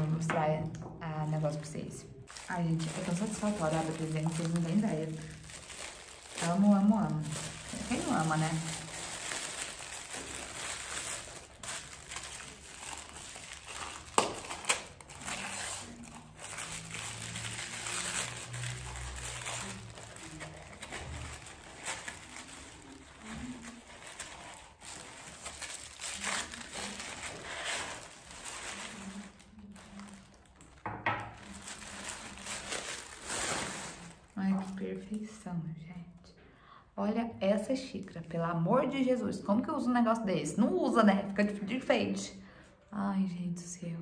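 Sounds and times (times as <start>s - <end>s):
plastic wrapping crinkling: 0.0s - 35.2s.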